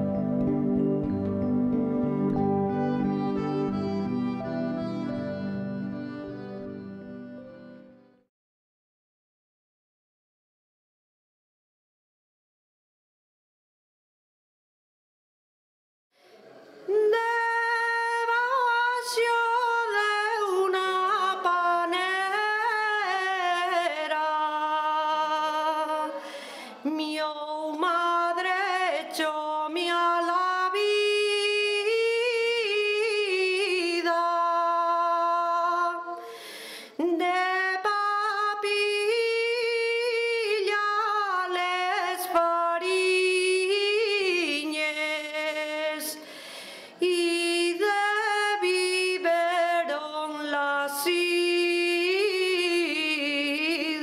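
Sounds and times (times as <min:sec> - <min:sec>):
woman singing unaccompanied: 0:16.9 - 0:26.2, 0:26.8 - 0:36.3, 0:37.0 - 0:46.2, 0:47.0 - 0:54.0.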